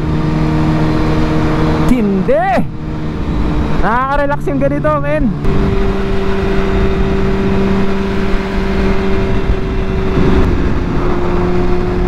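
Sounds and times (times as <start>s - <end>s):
motorcycle engine running: 0.0s - 12.0s
wind rush on microphone: 5.4s - 12.0s.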